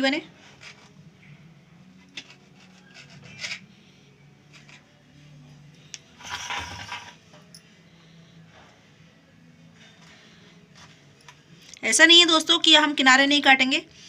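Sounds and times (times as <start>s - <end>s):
knife scraping bread on board: 2.2s - 3.7s.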